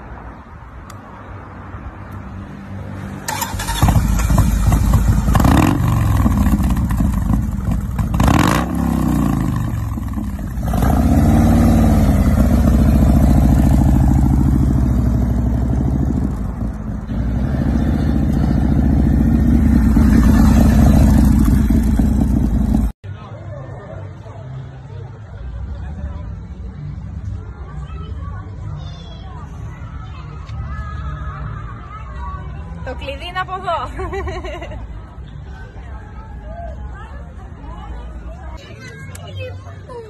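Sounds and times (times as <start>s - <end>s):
motorcycle engine revving: 3.3s - 23.0s.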